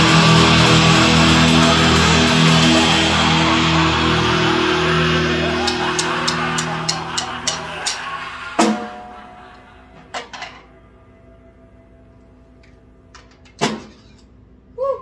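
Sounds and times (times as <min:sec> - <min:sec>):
drum kit hits ringing: 0:00.0 - 0:10.6
music: 0:00.0 - 0:13.5.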